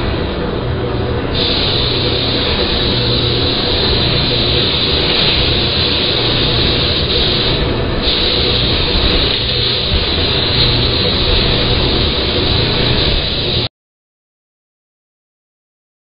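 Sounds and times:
steady machine drone: 0:00.0 - 0:13.7
spray gun hissing: 0:01.2 - 0:13.7.

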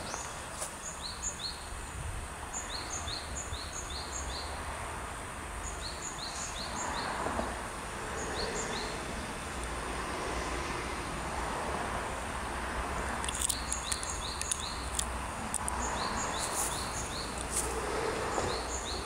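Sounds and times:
bird chirping: 0:00.0 - 0:01.8, 0:02.5 - 0:04.6, 0:05.6 - 0:07.2, 0:13.2 - 0:15.0, 0:15.7 - 0:19.0
light clicks: 0:13.2 - 0:15.8.

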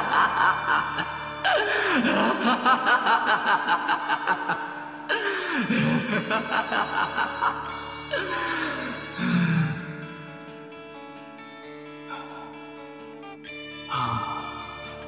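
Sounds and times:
man laughing maniacally: 0:00.0 - 0:10.0
background music: 0:00.0 - 0:15.0.

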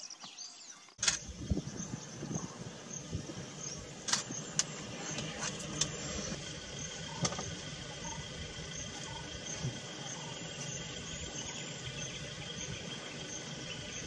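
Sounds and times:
sharp clicks: 0:01.0 - 0:01.3, 0:04.0 - 0:06.4
vehicle engine idling: 0:01.0 - 0:14.0.

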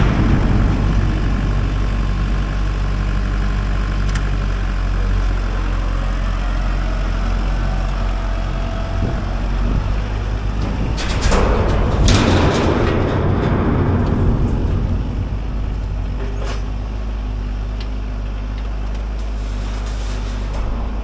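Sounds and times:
loud burst of noise: 0:00.0 - 0:06.9
tractor diesel engine running: 0:00.0 - 0:21.0.

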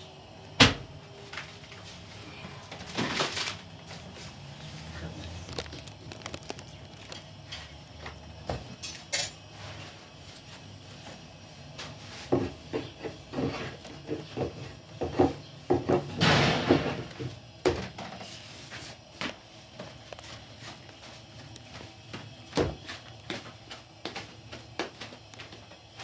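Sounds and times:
pans and utensils clattering: 0:08.7 - 0:09.4.

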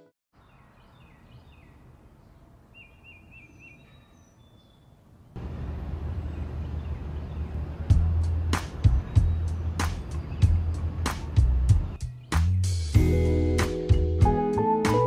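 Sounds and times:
small birds chirping: 0:00.3 - 0:12.9
outdoor background noise with low rumble: 0:00.4 - 0:12.0.

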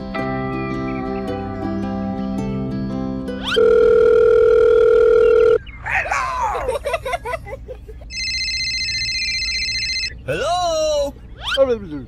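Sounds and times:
phone ringing: 0:03.4 - 0:05.6, 0:08.1 - 0:10.2
chirping electronic tones: 0:03.4 - 0:05.9, 0:08.1 - 0:12.0
telephone dial tone: 0:03.6 - 0:05.6, 0:08.1 - 0:10.1.

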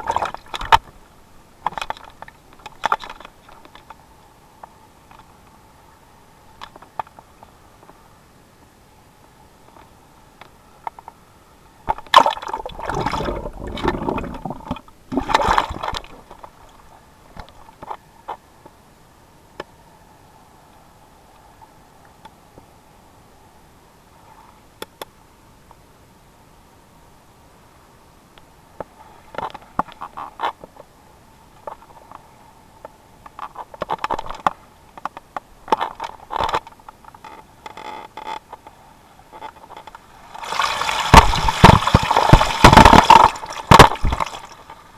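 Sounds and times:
water splashing and gurgling: 0:00.0 - 0:00.8, 0:12.0 - 0:16.9, 0:40.1 - 0:44.9
camera housing knocking on stones: 0:41.1 - 0:44.4.

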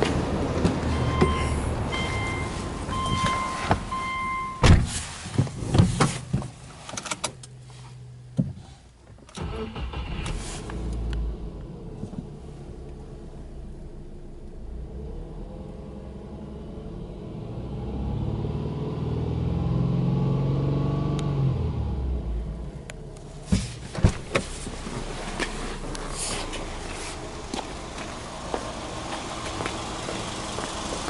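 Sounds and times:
car engine starting and idling: 0:00.0 - 0:31.0
short electronic beeps: 0:00.9 - 0:04.6.

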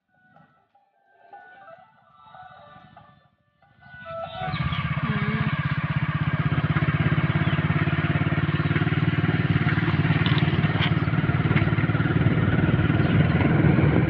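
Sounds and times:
motorcycle engine throbbing: 0:01.3 - 0:14.0
road and wind noise: 0:03.7 - 0:14.0.

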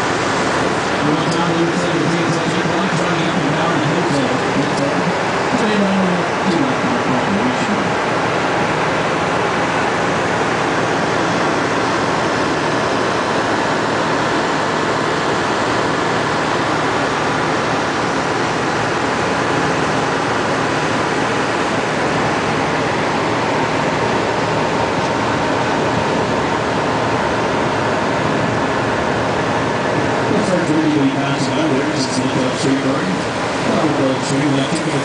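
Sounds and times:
water rushing past boat hull: 0:00.0 - 0:35.0
wind over open deck: 0:00.0 - 0:35.0.

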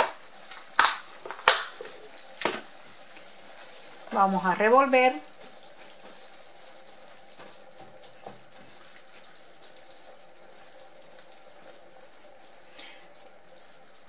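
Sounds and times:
food simmering in a pan: 0:00.0 - 0:14.0.

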